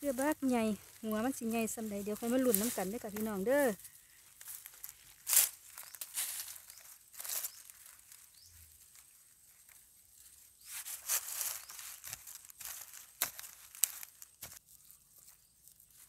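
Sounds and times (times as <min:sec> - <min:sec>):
dry leaves rustling and crunching: 0:00.0 - 0:16.0
hand scraping dry soil: 0:00.0 - 0:16.0.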